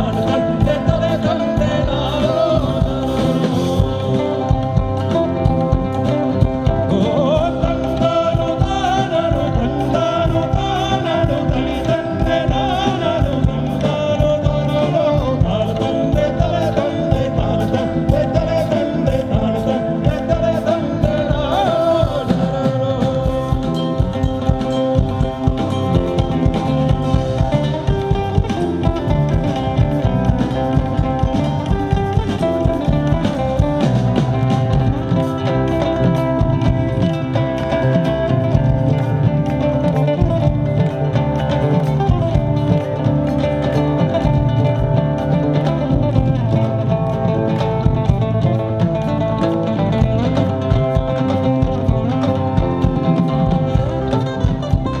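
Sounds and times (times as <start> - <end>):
person singing: 0.0 - 38.3
rock band playing live: 0.0 - 55.0.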